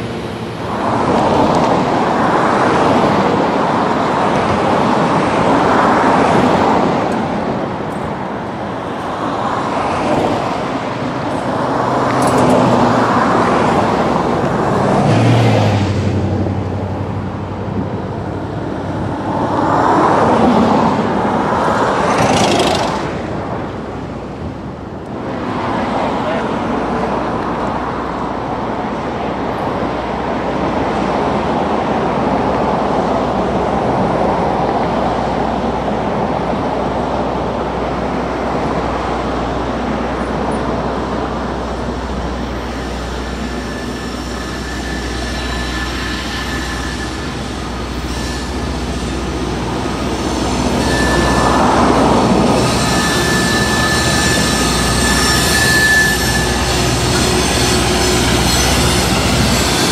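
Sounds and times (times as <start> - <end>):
train rumbling: 0.0 - 59.9
high-pitched whine: 39.6 - 59.9.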